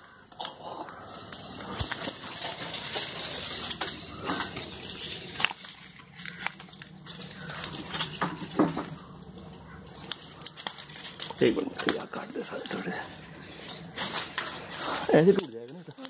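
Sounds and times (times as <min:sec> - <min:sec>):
twigs and branches rustling and snapping: 0:00.0 - 0:16.0.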